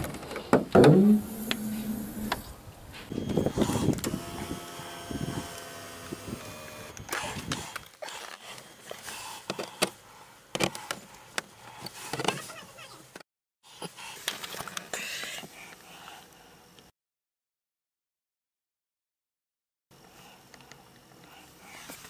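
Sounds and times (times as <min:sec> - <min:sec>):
seat motor whining: 0:00.8 - 0:07.6.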